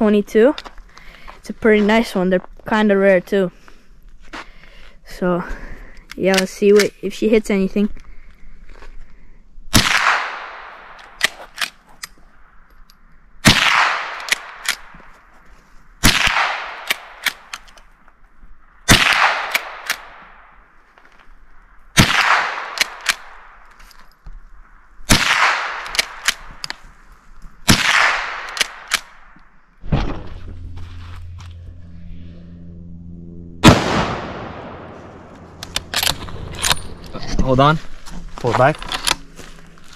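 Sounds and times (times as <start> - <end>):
rifle shots echoing: 9.7 - 11.6, 13.4 - 15.0, 16.0 - 17.6, 18.8 - 20.6, 21.9 - 23.6, 25.1 - 26.6, 27.6 - 29.3, 33.6 - 37.0.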